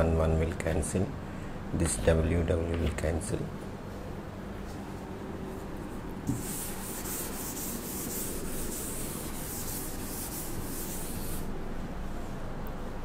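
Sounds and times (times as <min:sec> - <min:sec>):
eraser rubbing chalkboard: 0:06.3 - 0:11.5.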